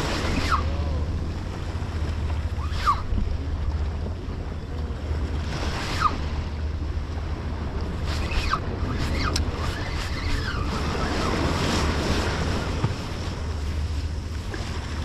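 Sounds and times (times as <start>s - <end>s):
surf against a breakwater: 0.0s - 15.0s
wind buffeting microphone: 0.0s - 15.0s.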